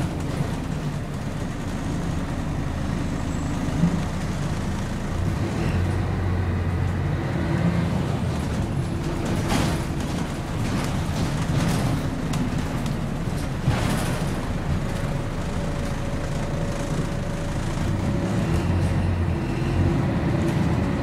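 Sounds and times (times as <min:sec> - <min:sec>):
bus engine droning: 0:00.0 - 0:21.0
rattly noise: 0:08.2 - 0:18.6.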